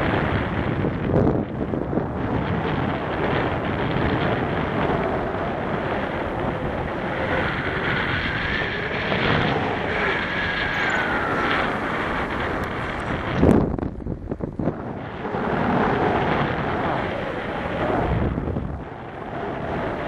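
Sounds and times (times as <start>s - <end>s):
wind rushing over microphone: 0.0s - 20.0s
faint wavering whistle: 9.6s - 13.0s.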